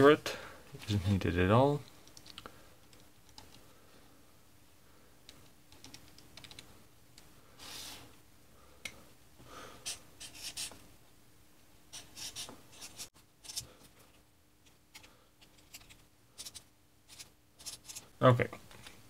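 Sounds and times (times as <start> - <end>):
marker scratching on paper: 9.8 - 10.8, 11.9 - 13.6, 16.4 - 18.0.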